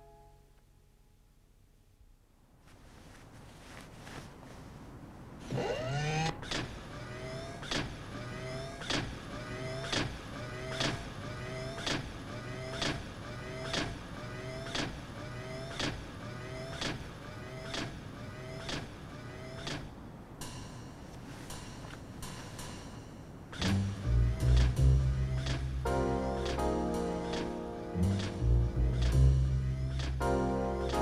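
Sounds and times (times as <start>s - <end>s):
rising motor whir: 5.4s - 11.8s.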